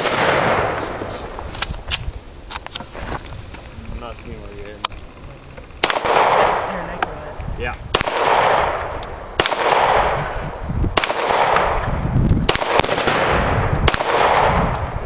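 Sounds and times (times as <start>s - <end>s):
pistol shots with echo: 0.0s - 0.9s, 5.8s - 6.8s, 7.9s - 11.9s, 12.5s - 14.9s.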